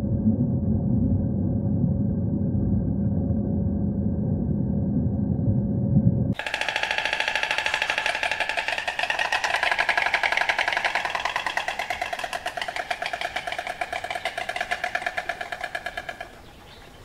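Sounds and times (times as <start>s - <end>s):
stork clattering its bill: 6.4s - 17.0s.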